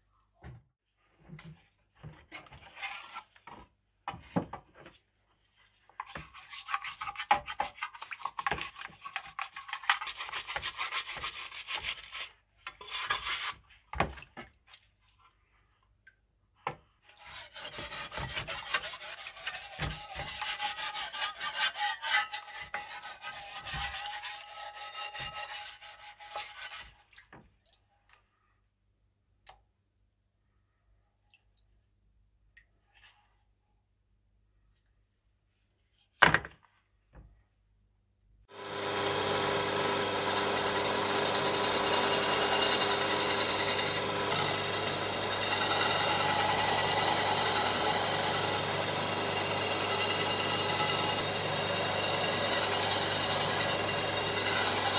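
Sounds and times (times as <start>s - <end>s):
scrubbing metal tin: 6.0s - 13.6s, 17.2s - 27.1s.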